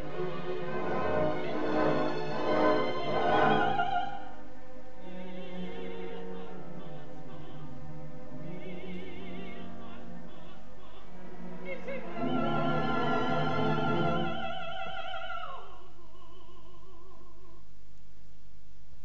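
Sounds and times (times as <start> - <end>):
orchestra playing: 0.0 - 4.2
operatic soprano singing: 0.0 - 17.7.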